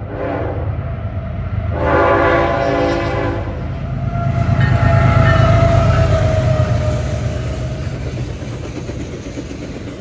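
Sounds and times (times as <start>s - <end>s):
passing train rumbling: 0.0s - 10.0s
locomotive air horn blasts: 0.1s - 0.7s, 1.7s - 3.6s.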